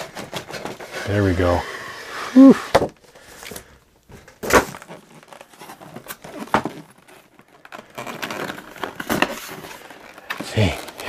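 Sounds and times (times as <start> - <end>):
cardboard rustling: 0.0 - 11.0.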